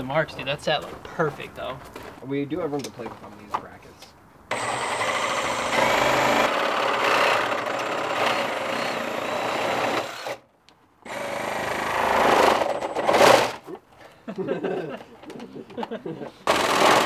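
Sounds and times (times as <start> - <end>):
cordless drill driving screws: 4.5 - 10.4, 11.1 - 13.5, 16.5 - 17.0.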